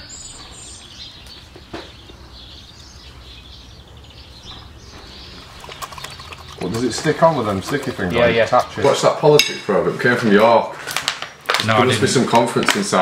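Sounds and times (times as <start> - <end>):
distant bird chirps: 0.0 - 9.4.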